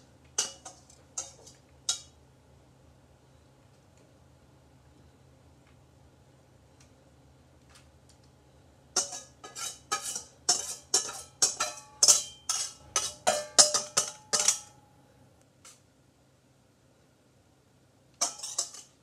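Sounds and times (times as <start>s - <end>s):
whisk clinking on metal bowl: 0.4s - 2.1s, 9.0s - 14.8s, 18.2s - 19.0s.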